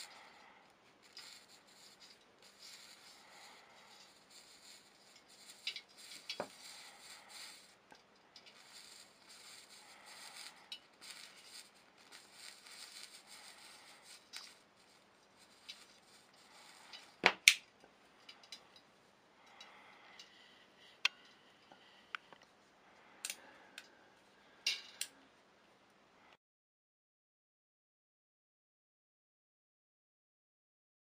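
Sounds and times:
laser burning crackle and hiss: 0:00.0 - 0:18.8.

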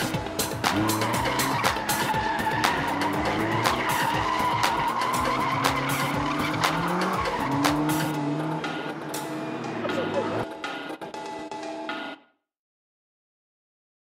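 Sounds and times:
car engine revving: 0:00.0 - 0:11.0
tyres squealing: 0:00.6 - 0:08.2.

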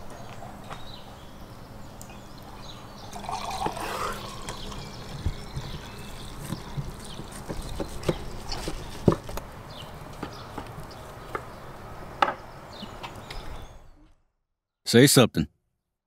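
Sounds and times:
wine pouring into glass: 0:03.1 - 0:06.4.

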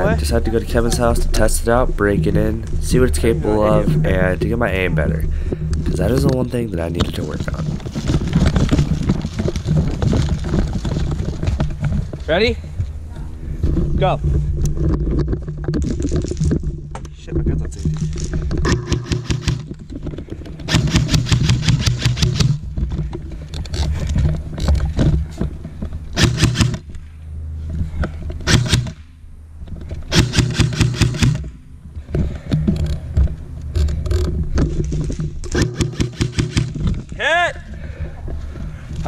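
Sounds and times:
airsoft rifle firing bursts: 0:20.7 - 0:22.6, 0:26.2 - 0:26.8, 0:30.1 - 0:31.4, 0:35.5 - 0:36.8.

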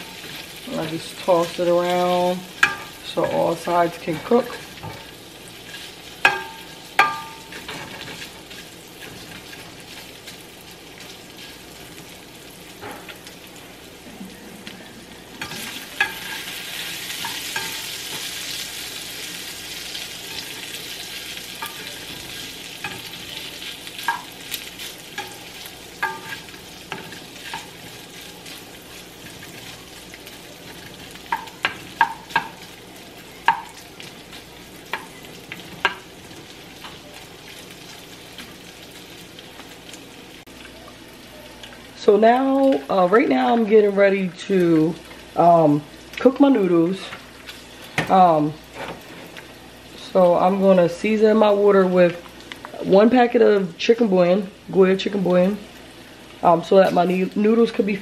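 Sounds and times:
sausage sizzling in a frying pan: 0:00.0 - 0:58.0
spatula scraping and knocking pan: 0:02.6 - 0:10.1, 0:15.4 - 0:16.5, 0:24.0 - 0:28.6, 0:30.7 - 0:32.7.

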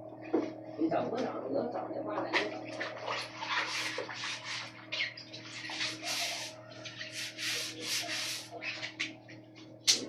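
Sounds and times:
hands scrubbing in water: 0:02.4 - 0:09.2.

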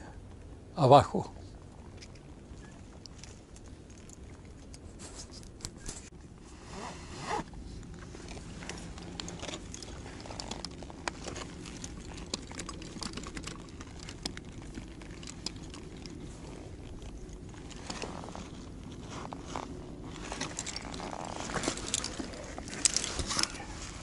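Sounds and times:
gear clicking and scraping: 0:07.3 - 0:24.0.

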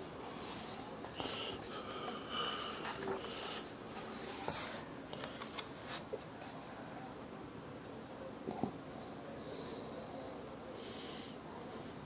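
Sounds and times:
book pages flipping: 0:00.4 - 0:06.9.

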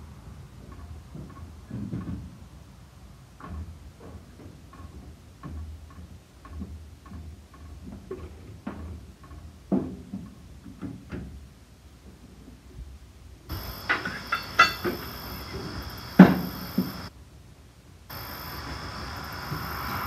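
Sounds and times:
metal clicks and knocks: 0:13.5 - 0:16.9.

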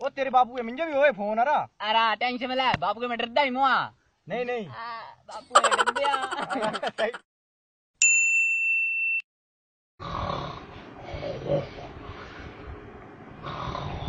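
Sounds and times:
electronic ding tone: 0:08.0 - 0:09.2
man snoring: 0:10.0 - 0:11.6, 0:13.4 - 0:14.0.

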